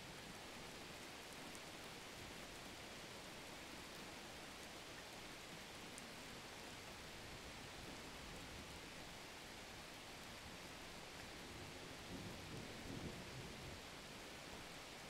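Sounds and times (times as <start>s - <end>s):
faint steady hiss: 0.0s - 15.0s.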